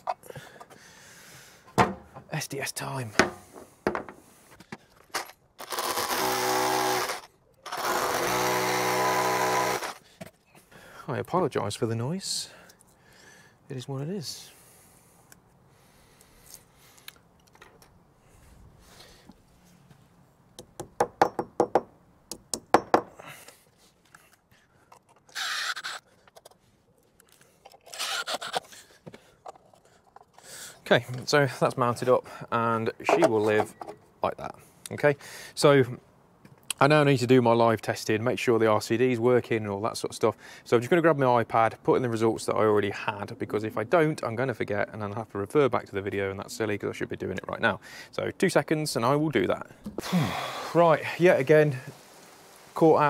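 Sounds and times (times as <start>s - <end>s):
hammer drill boring into brick: 5.6s - 10.0s, 25.3s - 26.0s, 27.9s - 28.7s.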